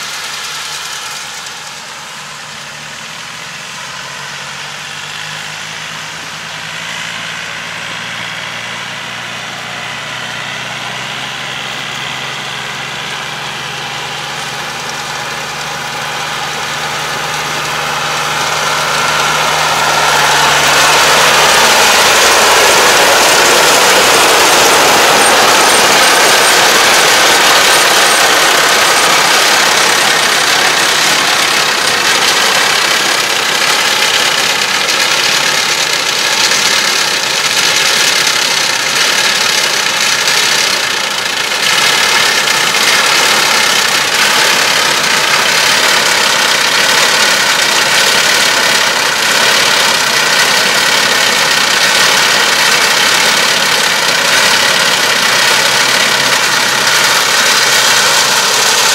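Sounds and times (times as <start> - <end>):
tractor diesel engine running: 0.0 - 58.9
loud even rushing noise: 15.6 - 58.9.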